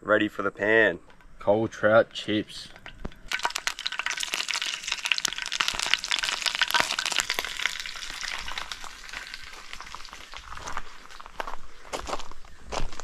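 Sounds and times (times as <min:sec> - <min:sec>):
fish frying in hot oil: 0:02.9 - 0:10.8.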